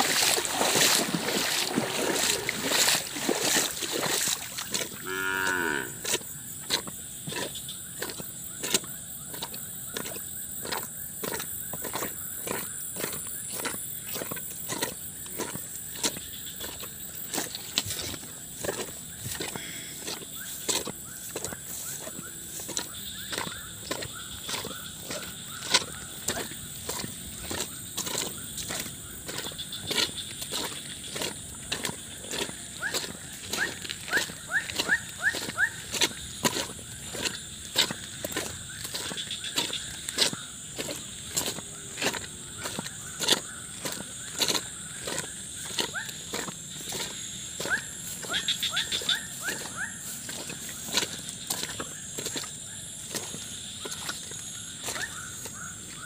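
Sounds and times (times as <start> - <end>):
footsteps through wet grass: 0.0 - 56.0
cow mooing: 5.0 - 6.2.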